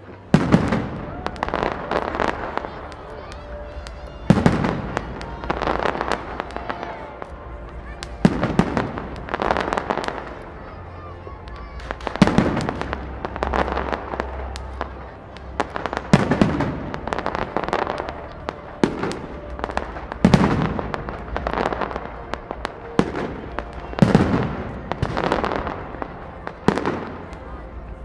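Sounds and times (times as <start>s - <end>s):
fireworks bursting with bangs: 0.0s - 10.8s, 11.4s - 28.0s
fireworks popping and crackling: 0.0s - 28.0s.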